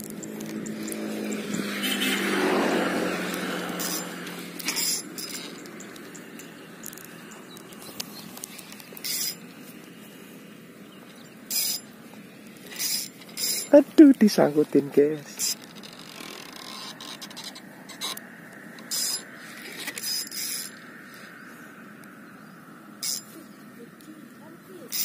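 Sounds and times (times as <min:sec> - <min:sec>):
fishing reel gears whirring: 0:00.0 - 0:09.4, 0:11.5 - 0:11.9, 0:12.6 - 0:13.8, 0:15.2 - 0:20.8, 0:23.0 - 0:23.3
reel clicking: 0:03.3 - 0:09.4, 0:11.5 - 0:11.8, 0:12.6 - 0:13.8, 0:15.3 - 0:20.8.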